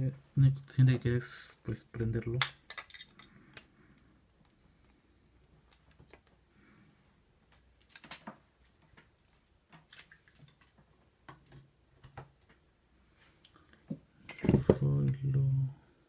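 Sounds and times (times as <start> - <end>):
small objects clicking and tapping: 2.4 - 3.7, 7.5 - 9.1.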